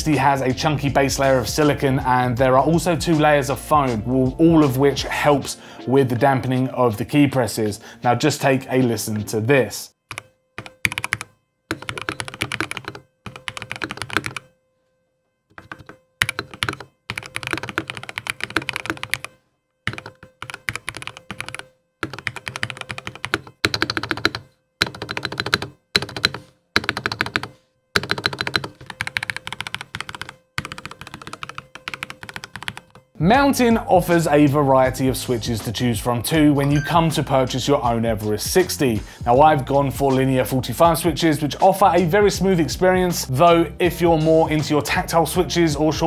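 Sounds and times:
typing on mechanical keyboard: 10.1 - 14.5, 15.5 - 33.1.

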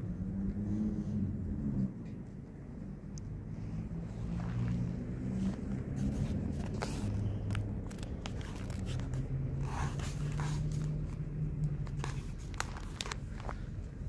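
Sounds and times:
sharp clicks and scrapes: 4.2 - 13.7.

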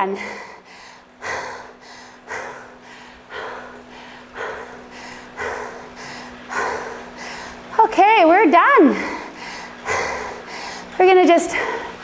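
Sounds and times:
heavy rasping breaths: 0.0 - 7.8, 8.7 - 12.0.

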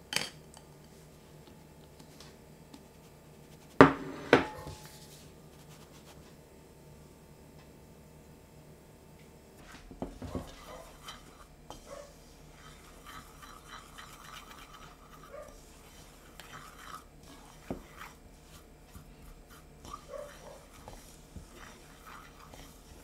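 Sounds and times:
chopsticks stirring flour in bowl: 2.8 - 6.3, 9.6 - 23.0.

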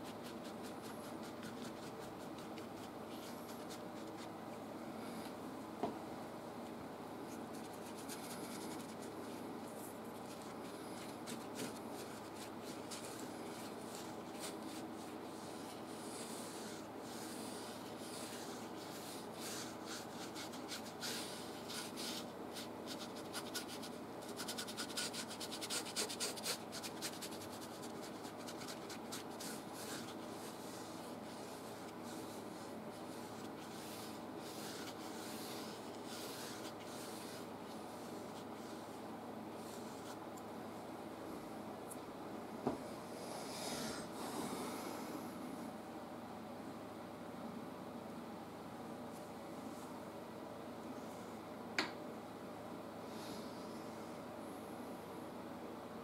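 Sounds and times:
brush scratching on canvas: 0.0 - 4.3, 7.3 - 39.0, 39.6 - 40.2.

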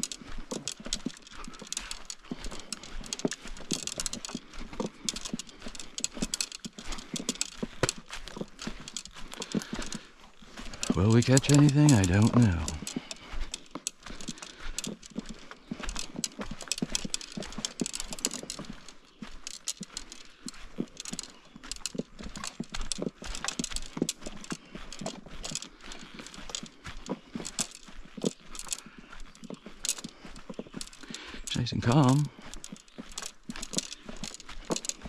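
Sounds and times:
footsteps crunching on forest floor: 0.0 - 35.0
twigs snapping underfoot: 0.0 - 35.0.

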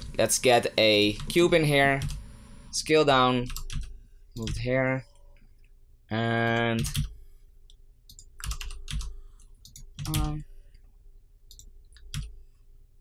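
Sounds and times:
keyboard and mouse clicks: 6.4 - 10.4, 11.4 - 12.4.

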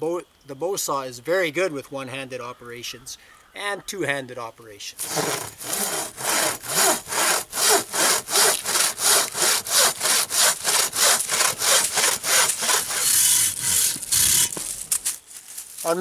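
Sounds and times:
bow saw rasping through log: 5.0 - 14.7.

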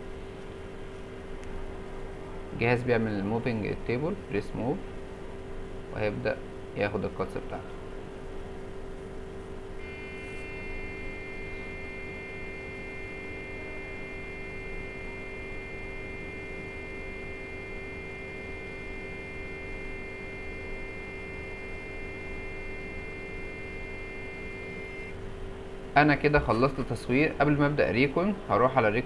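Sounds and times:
scanner low hum: 0.0 - 29.0
high whining tones: 9.8 - 25.2.

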